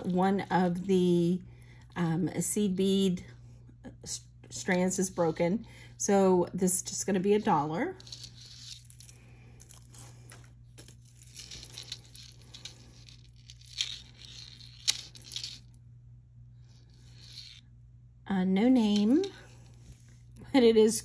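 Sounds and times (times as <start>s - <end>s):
low hum: 0.0s - 21.0s
jewelry rustling and clinking: 7.3s - 15.8s.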